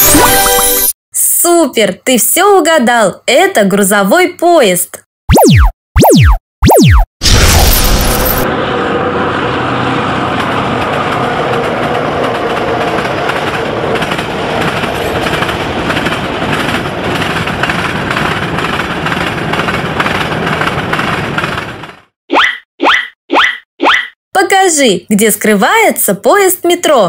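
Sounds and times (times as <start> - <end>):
diesel locomotive engine rumble: 8.4 - 22.1.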